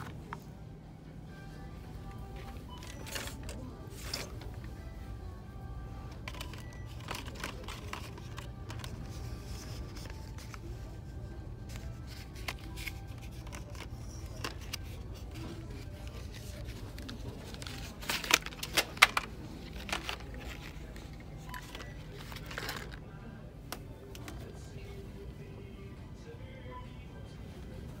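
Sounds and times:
store hum: 0:00.0 - 0:28.0
plastic packaging clicking and rattling: 0:06.1 - 0:10.7, 0:11.7 - 0:23.0.

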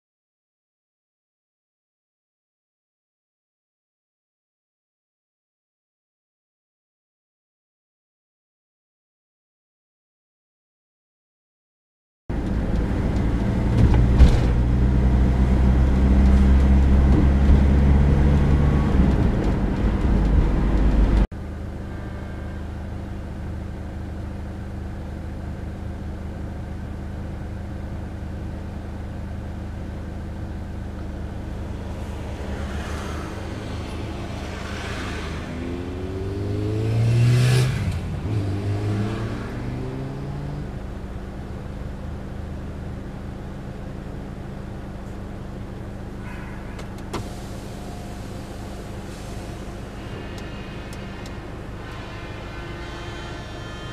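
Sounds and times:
car cabin road hum: 0:12.3 - 0:38.4, 0:40.6 - 0:52.6
engine revving: 0:12.6 - 0:21.3, 0:31.2 - 0:40.9.

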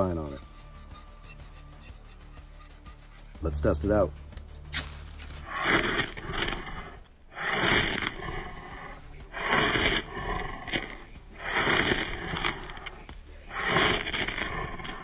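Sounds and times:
saw spine rasping on ferro rod: 0:00.0 - 0:03.4.

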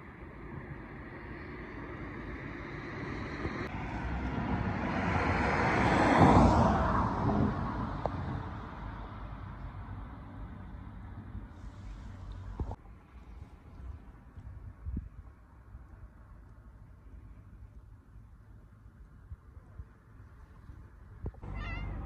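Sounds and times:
vehicle passing by: 0:01.7 - 0:12.4.

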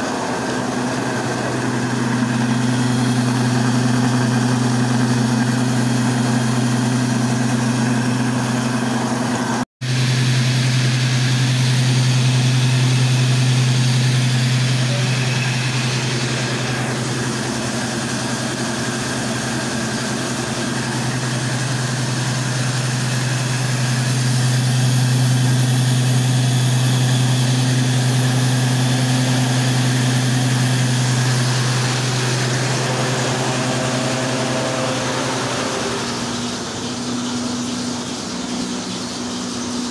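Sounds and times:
flour mill grinding grain: 0:09.9 - 0:39.9.

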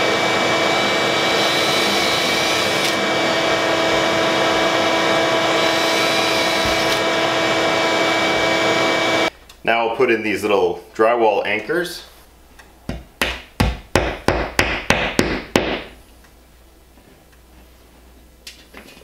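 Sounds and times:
vacuum cleaner running: 0:00.0 - 0:09.3.

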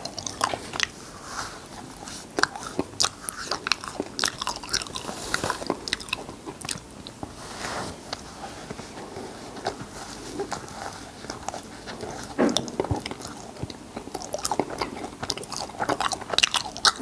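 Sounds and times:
lip and tongue smacks eating: 0:09.6 - 0:17.0.

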